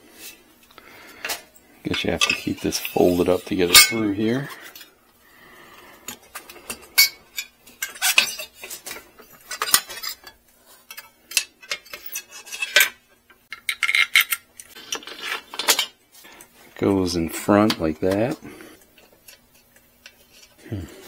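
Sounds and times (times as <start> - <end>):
metal fender clinking and rattling: 2.0 - 4.9.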